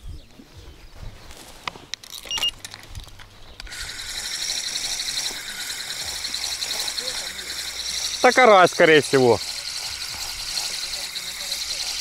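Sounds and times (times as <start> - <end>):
fishing reel whirring: 3.5 - 12.0.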